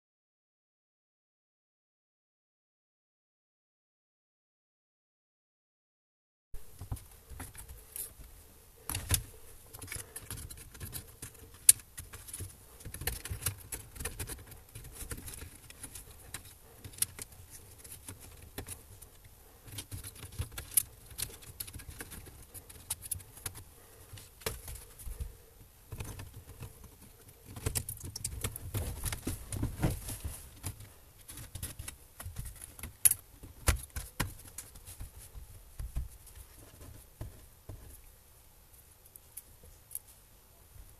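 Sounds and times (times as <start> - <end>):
clicks and taps on laptop parts: 30.6 - 35.1.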